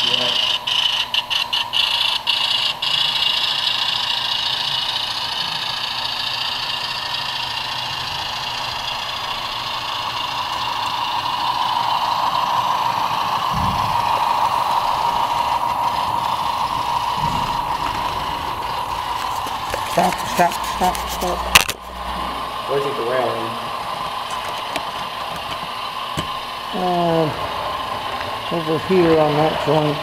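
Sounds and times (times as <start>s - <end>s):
model train hum and whine: 0.0s - 30.0s
short low thumps: 13.5s - 14.1s, 16.1s - 19.3s.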